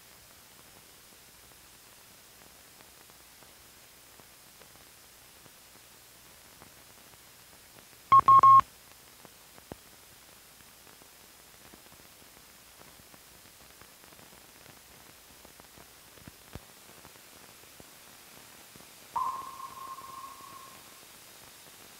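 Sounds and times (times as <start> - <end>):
film soundtrack hiss and crackle: 0.0 - 21.9
short loud beep: 8.1 - 8.6, 19.2 - 20.9.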